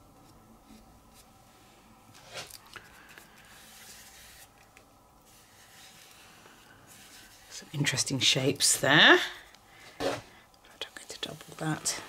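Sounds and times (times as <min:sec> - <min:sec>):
paintbrush swishing on paper: 0:03.4 - 0:04.6, 0:05.2 - 0:09.0, 0:10.9 - 0:12.0.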